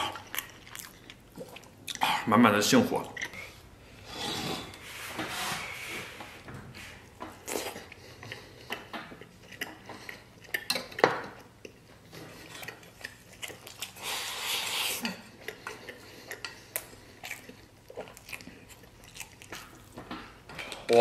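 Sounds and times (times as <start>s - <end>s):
mouth sounds of eating: 0.0s - 3.6s, 7.3s - 20.0s.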